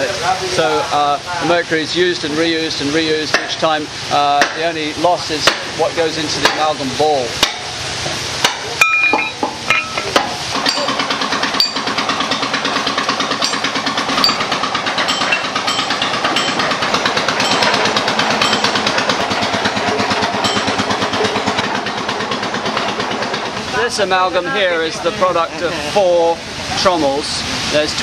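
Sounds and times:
sharp metal clanks: 0:08.4 - 0:21.6
machinery pulsing: 0:09.7 - 0:23.8.

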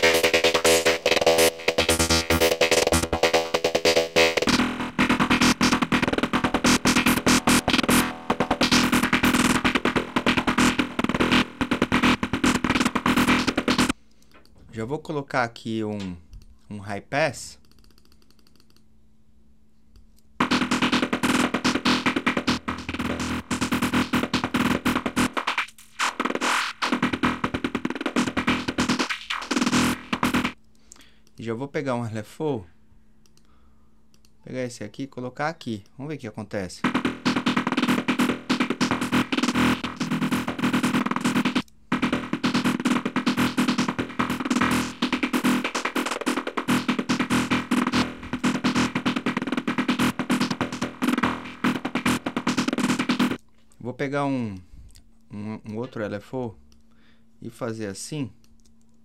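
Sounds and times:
synthesizer stuttering sequence: 0:00.0 - 0:14.0, 0:20.4 - 0:30.6, 0:36.8 - 0:53.4.

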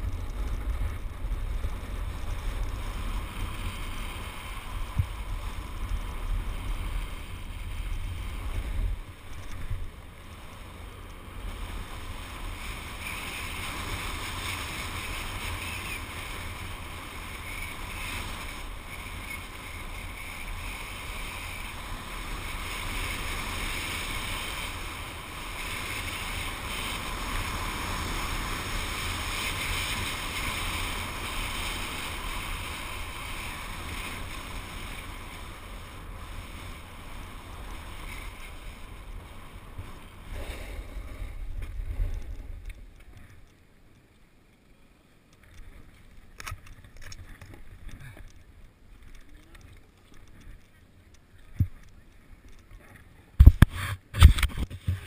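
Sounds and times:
skis hissing over snow: 0:10.0 - 0:42.6.

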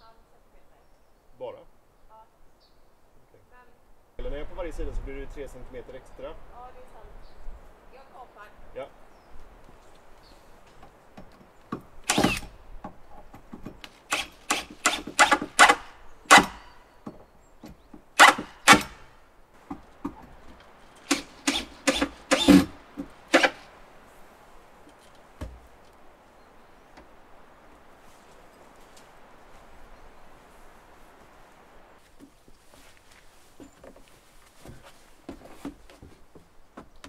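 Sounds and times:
cordless drill driving screws: 0:12.0 - 0:12.5, 0:14.1 - 0:16.6, 0:21.0 - 0:23.7.

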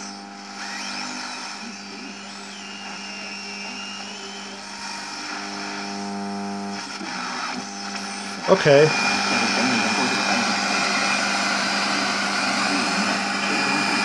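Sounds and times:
radio static and hiss: 0:00.0 - 0:14.0
faint sliding whistle: 0:02.0 - 0:04.7.

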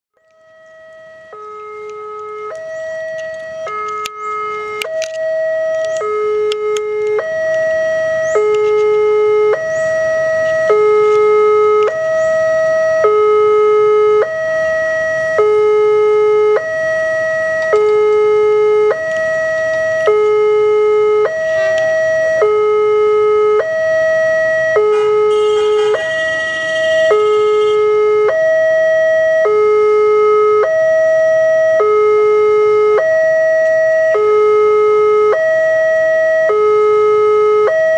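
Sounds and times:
two-tone crossing alarm: 0:00.1 - 0:37.9
clicks: 0:00.2 - 0:09.7, 0:17.5 - 0:18.3, 0:21.2 - 0:22.0.

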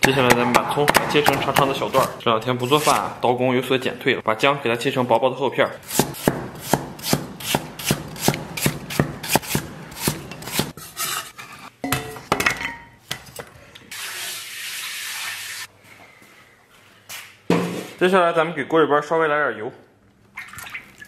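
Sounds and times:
cleaver chopping on wooden board: 0:00.0 - 0:02.1, 0:05.9 - 0:10.7.

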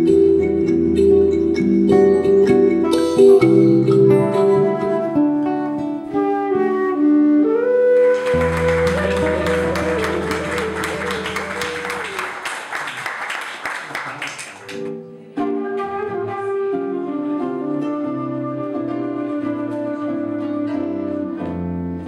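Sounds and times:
guitar plucking: 0:00.0 - 0:06.2, 0:08.3 - 0:12.1
flute guitar and keyboard trio: 0:00.0 - 0:12.2, 0:15.2 - 0:22.0
audience applauding: 0:08.0 - 0:15.0.

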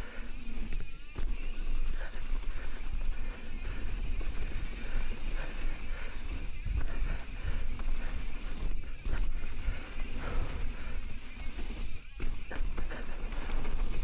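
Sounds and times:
bike tyres on dirt trail: 0:00.0 - 0:14.0
wind buffeting microphone: 0:01.2 - 0:14.0
bike knocking over bumps: 0:11.6 - 0:14.0.

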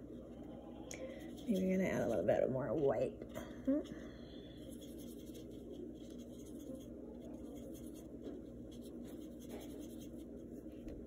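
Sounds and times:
low room hum: 0:00.0 - 0:11.0
paintbrush brushing on canvas: 0:04.7 - 0:10.8.

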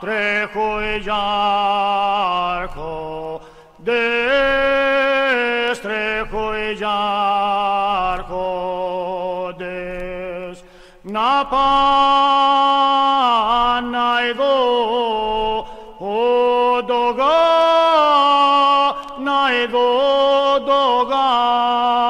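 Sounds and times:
man singing folk song: 0:00.0 - 0:22.0
singer breathing: 0:03.4 - 0:03.8, 0:10.6 - 0:11.1, 0:15.6 - 0:16.0.

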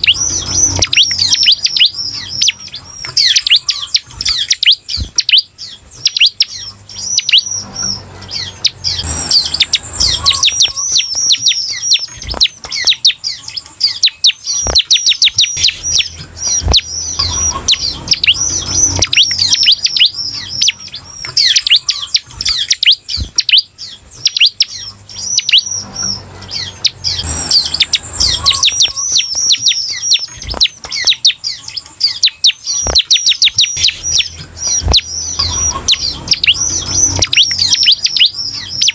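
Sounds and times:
high buzzy trill: 0:00.0 - 0:05.5, 0:06.4 - 0:13.2, 0:14.4 - 0:23.1, 0:24.6 - 0:31.3, 0:32.5 - 0:38.9
bird singing fast chatter: 0:00.0 - 0:38.9
sharp ticks: 0:00.0 - 0:38.9.

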